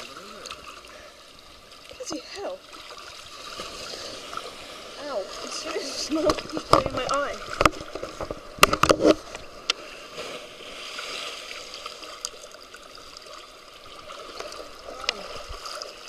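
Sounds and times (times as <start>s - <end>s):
waves washing on shore: 2.0s - 12.2s.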